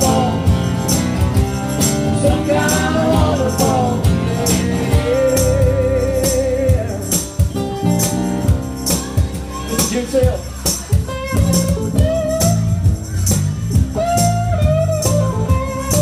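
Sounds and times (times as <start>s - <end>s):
person singing: 0.0s - 0.8s, 2.2s - 7.2s
electric bass: 0.0s - 16.0s
tambourine: 0.0s - 16.0s.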